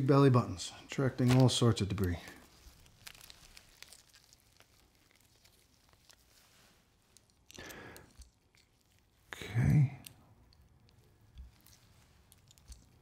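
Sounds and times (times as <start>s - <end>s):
small clicks and rustles: 1.2s - 13.0s.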